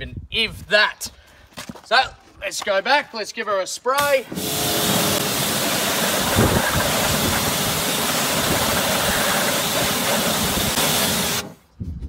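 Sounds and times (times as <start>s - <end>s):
pressure washer spraying water: 4.0s - 11.6s.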